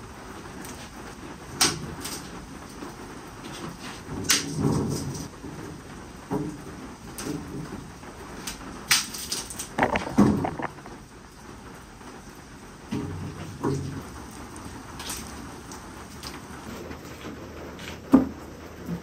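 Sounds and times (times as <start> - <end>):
steady rain: 0.0 - 19.0
wood knocking and scraping on floor: 9.8 - 11.0.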